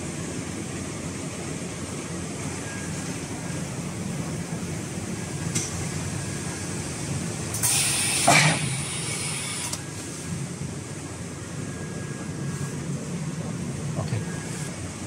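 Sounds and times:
loud hiss of air: 7.5 - 10.3.

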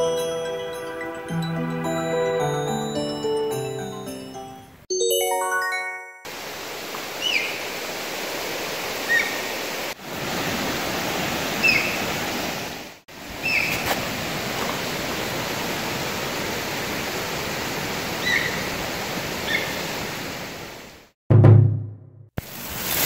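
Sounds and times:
mountain stream rushing: 5.8 - 21.1
high whistled animal calls: 11.6 - 12.0.

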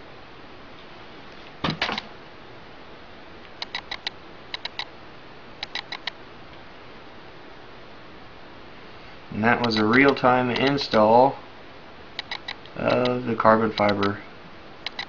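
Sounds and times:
sharp ticks: 3.6 - 4.9, 5.6 - 6.2, 9.6 - 11.1, 12.2 - 14.2.

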